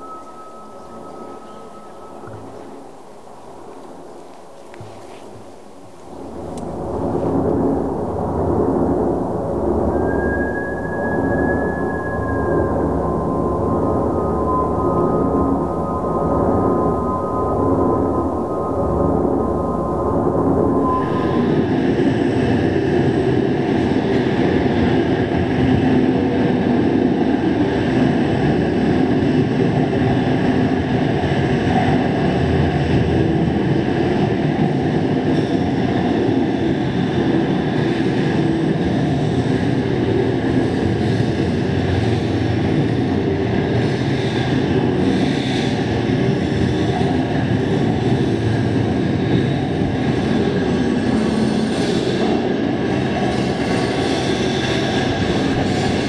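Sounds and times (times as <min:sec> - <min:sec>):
loud low rumbling noise: 0:05.7 - 0:31.1, 0:53.0 - 0:56.0.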